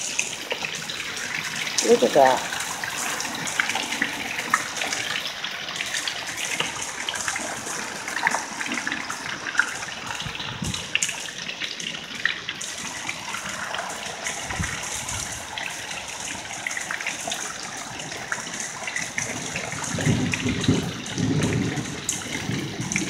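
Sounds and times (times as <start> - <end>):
heavy rain: 0.0 - 23.0
hailstones ticking: 17.3 - 23.0.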